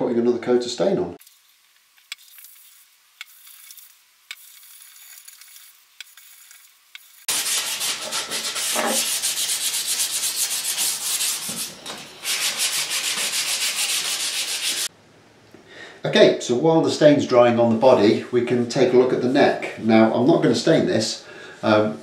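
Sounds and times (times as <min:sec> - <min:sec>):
sandpaper sanding wood: 0:02.5 - 0:14.9.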